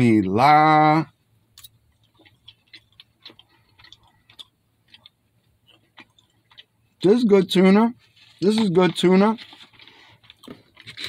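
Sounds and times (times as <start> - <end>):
chewing food close up: 1.5 - 7.0, 9.4 - 11.0.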